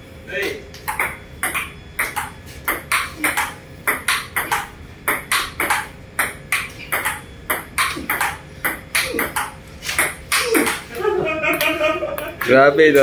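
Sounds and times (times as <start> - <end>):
table tennis ball clicks: 0.7 - 10.9.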